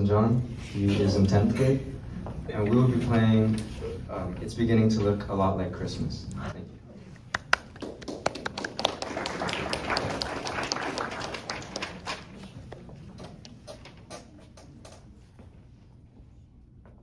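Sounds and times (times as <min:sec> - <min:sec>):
small audience clapping: 0:07.2 - 0:12.9.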